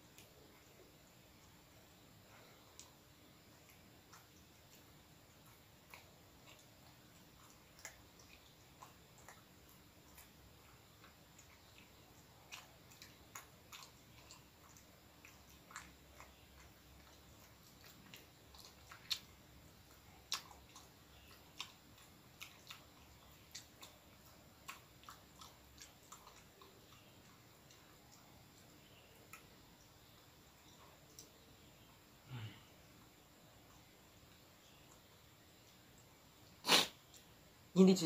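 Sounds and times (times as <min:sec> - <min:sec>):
person chewing with mouth clicks: 0:02.4 - 0:30.0.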